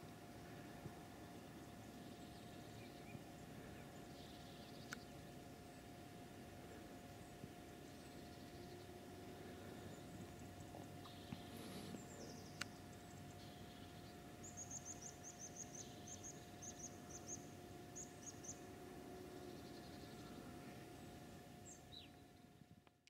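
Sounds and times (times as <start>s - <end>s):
small bird chirping: 7.2s - 18.7s.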